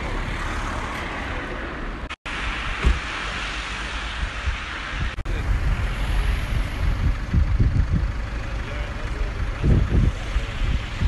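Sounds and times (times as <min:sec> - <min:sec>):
wind buffeting microphone: 0:04.1 - 0:08.4, 0:09.3 - 0:11.0.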